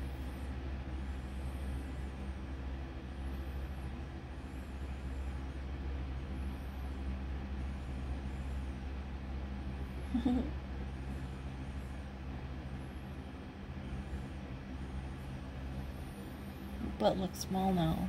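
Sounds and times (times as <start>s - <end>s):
faint steady tones: 0.0s - 18.0s
low machine hum: 0.0s - 18.0s.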